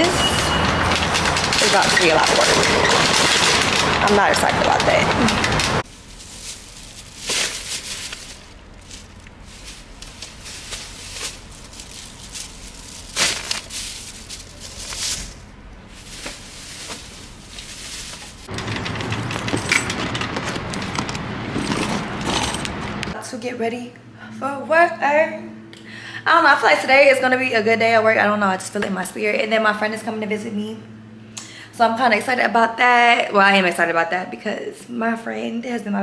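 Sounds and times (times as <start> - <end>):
plastic bags rustling: 0.0 - 23.2.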